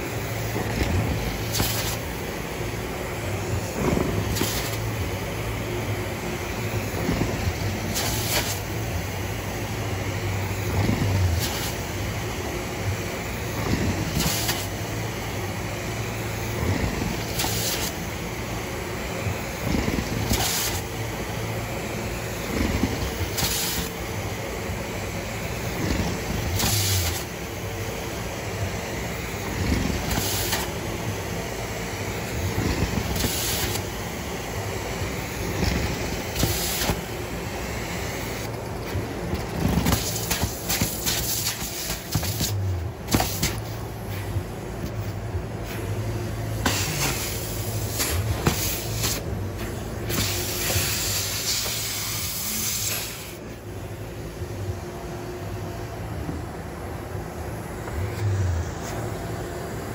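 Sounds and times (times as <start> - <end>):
carpet extraction wand suction: 0.0 - 5.4, 6.1 - 9.4, 10.0 - 27.4, 28.3 - 38.5, 39.4 - 43.7, 46.5 - 53.4.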